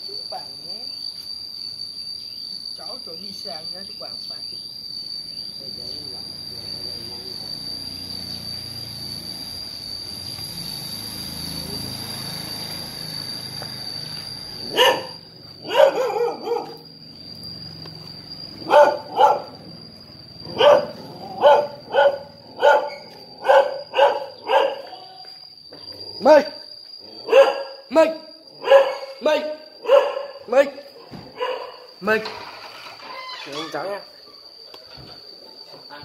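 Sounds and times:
high insect drone: 0:00.0 - 0:36.0
dog barking: 0:14.7 - 0:16.8, 0:18.6 - 0:19.6, 0:20.5 - 0:25.0, 0:27.2 - 0:27.8, 0:28.6 - 0:29.2, 0:29.8 - 0:31.9.

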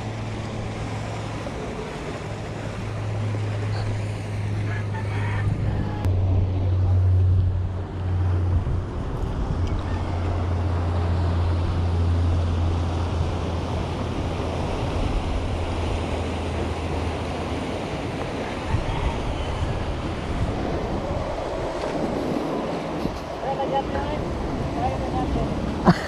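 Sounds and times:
water rushing: 0:00.0 - 0:26.0
yacht engines droning: 0:00.0 - 0:26.0
wind noise on microphone: 0:05.1 - 0:10.8, 0:18.0 - 0:23.4.

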